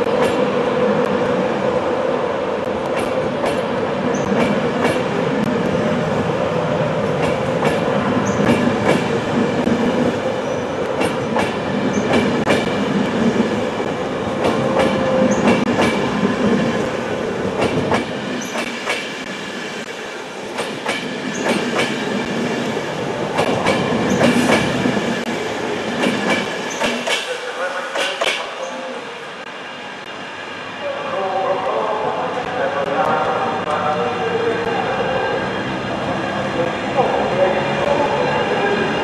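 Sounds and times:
train wheels clickety-clack: 0.0s - 1.2s, 2.6s - 5.8s, 7.2s - 10.2s, 10.9s - 16.9s, 17.6s - 28.5s
train rumble: 0.0s - 39.0s.

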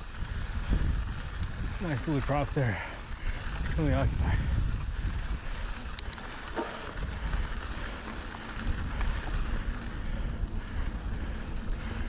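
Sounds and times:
bike tyres rolling on dirt: 0.0s - 12.0s
wind noise on microphone: 0.0s - 12.0s
light clicks: 5.9s - 6.2s.

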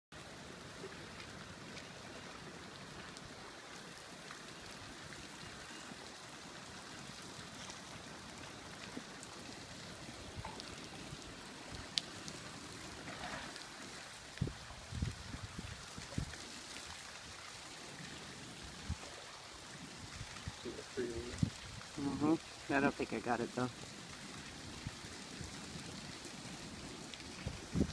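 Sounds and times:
creek water rushing: 0.2s - 27.9s.

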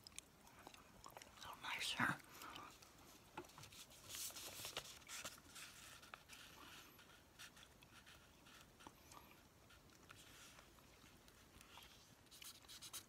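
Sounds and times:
paper being folded and creased: 3.4s - 8.9s, 9.6s - 13.0s.

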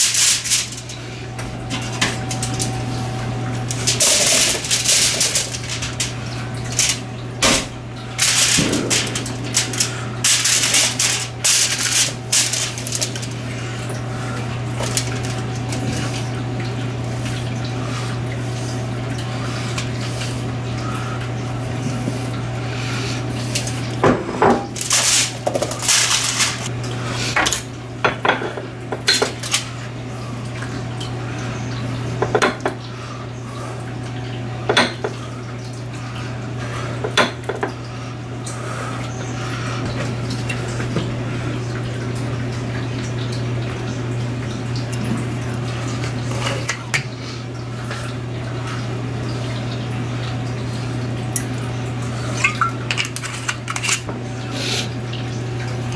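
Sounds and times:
aluminum foil crinkling: 0.0s - 1.0s, 3.7s - 7.0s, 8.1s - 13.5s, 14.7s - 16.1s, 24.7s - 26.7s, 29.4s - 29.7s.

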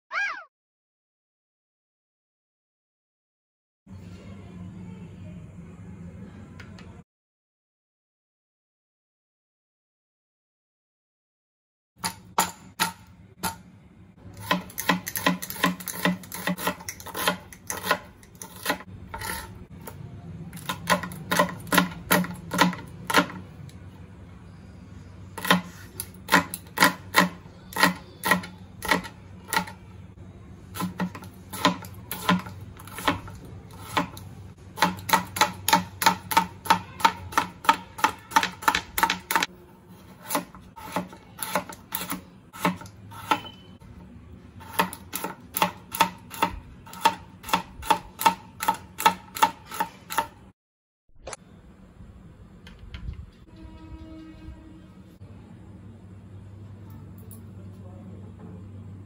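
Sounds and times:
knife chopping vegetables on board: 14.3s - 19.5s, 20.6s - 23.4s, 25.4s - 29.8s, 30.8s - 43.6s, 44.6s - 50.4s.

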